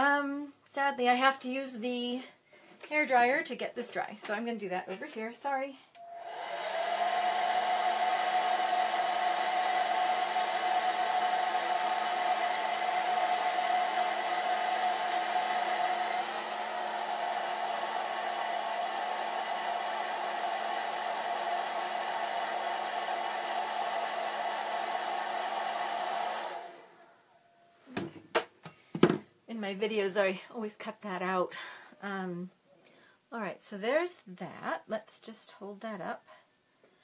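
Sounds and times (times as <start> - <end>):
hair dryer running: 6.0 - 27.2.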